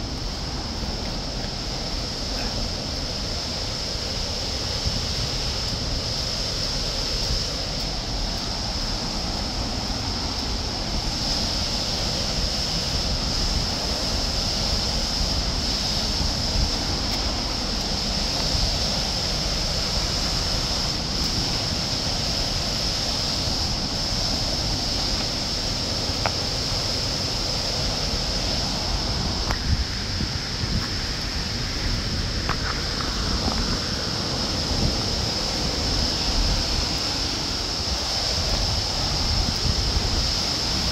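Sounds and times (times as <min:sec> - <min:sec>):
waterfall roaring: 0:00.0 - 0:40.9
wind rumble on microphone: 0:00.0 - 0:40.9.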